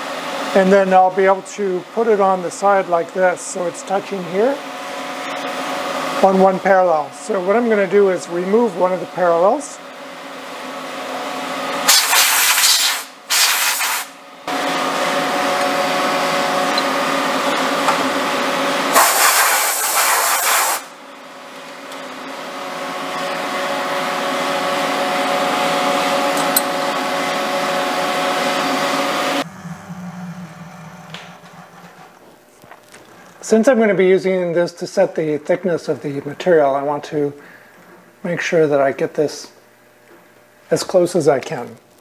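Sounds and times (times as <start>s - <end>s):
compressed air blasts hissing: 11.9s - 14.2s, 18.9s - 20.9s
machine hum: 14.2s - 19.0s, 21.0s - 38.3s.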